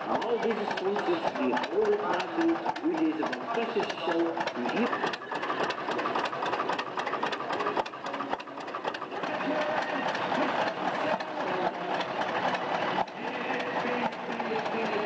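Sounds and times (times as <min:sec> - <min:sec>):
people talking: 0:00.0 - 0:05.2, 0:09.2 - 0:15.0
old engines clattering: 0:00.0 - 0:15.0.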